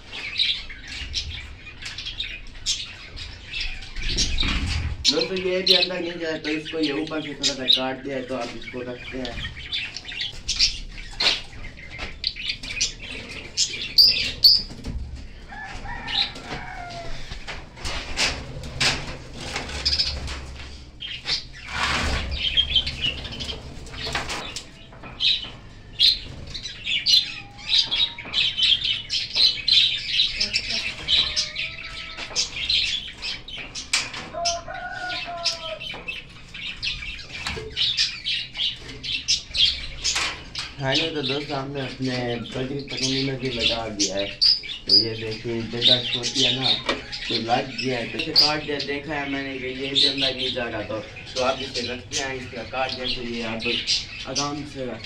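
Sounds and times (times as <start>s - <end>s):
birds chirping: 0.0s - 55.0s
birds fluttering wings: 10.3s - 27.0s.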